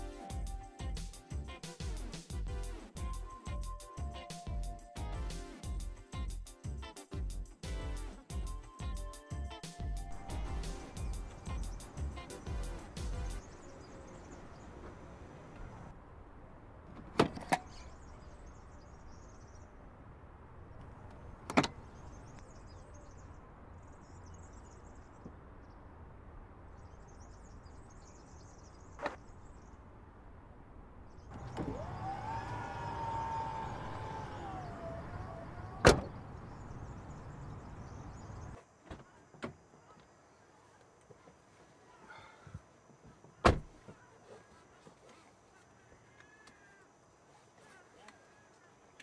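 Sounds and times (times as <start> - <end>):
tailgate latch thump: 16.9 - 17.6, 21.4 - 21.9, 33.7 - 36.8, 43.4 - 43.6
electric motor whine: 31.3 - 37.1.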